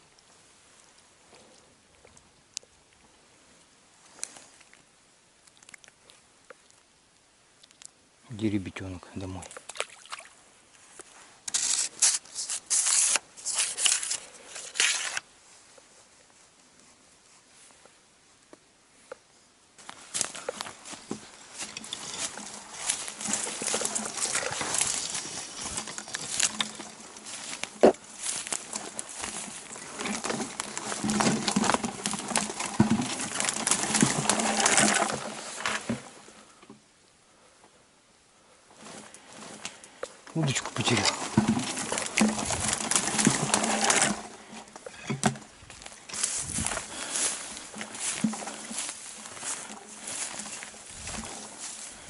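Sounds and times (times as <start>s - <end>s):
dry twigs crackling and snapping: 5.4s - 6.9s, 19.8s - 35.9s, 39.0s - 44.9s
branches and grass brushing: 8.8s - 36.6s, 38.7s - 52.0s.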